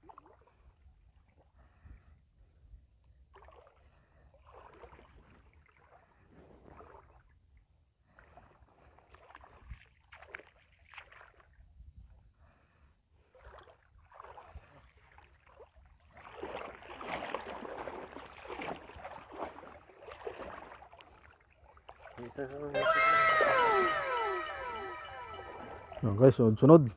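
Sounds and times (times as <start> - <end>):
water sloshing and splashing: 0.0 - 0.7, 3.3 - 3.8, 4.4 - 7.2, 8.1 - 11.6, 13.3 - 22.4.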